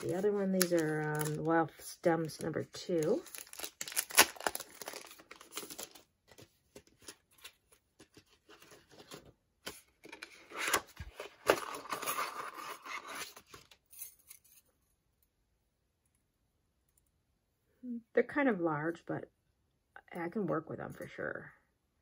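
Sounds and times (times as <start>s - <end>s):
plastic packaging crinkling: 0.0s - 1.6s, 2.2s - 7.5s.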